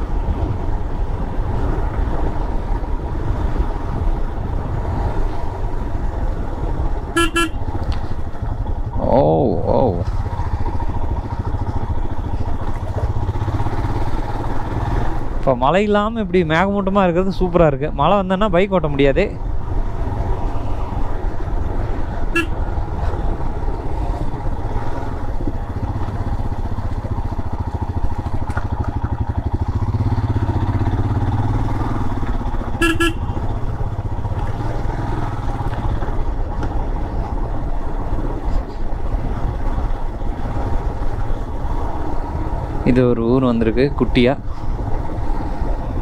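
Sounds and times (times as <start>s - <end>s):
wind rush on microphone: 0.0s - 13.3s
motorcycle engine running: 6.0s - 15.4s, 21.1s - 43.6s
horn tooting: 7.1s - 7.8s, 22.3s - 22.6s, 32.6s - 33.5s.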